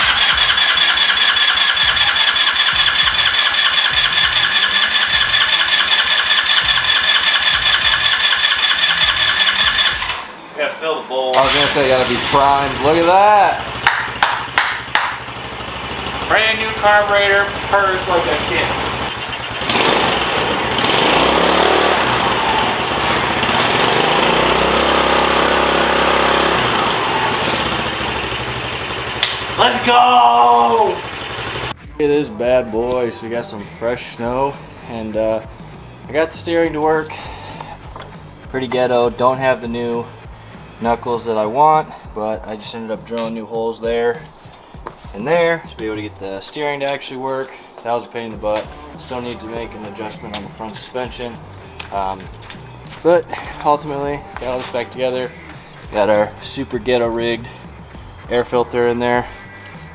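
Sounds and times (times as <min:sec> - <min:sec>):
engine cranking with electric starter: 0:00.0 - 0:10.3, 0:11.4 - 0:29.7, 0:30.7 - 0:31.7.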